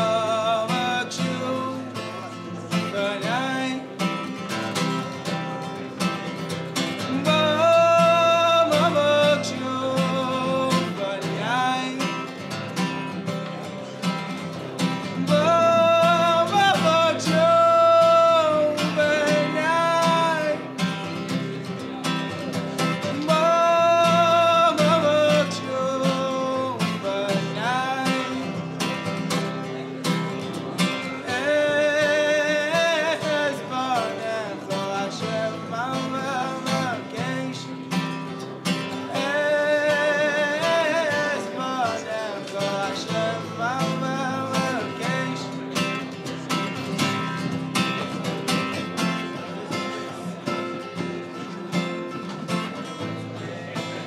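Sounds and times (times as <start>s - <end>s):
man singing: 0.0s - 50.5s
acoustic guitar strumming: 0.0s - 54.0s.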